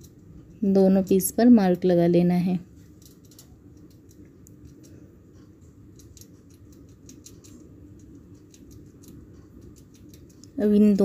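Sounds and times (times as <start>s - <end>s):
low steady hum: 0.0s - 11.0s
faint scratching and ticks: 2.6s - 11.0s.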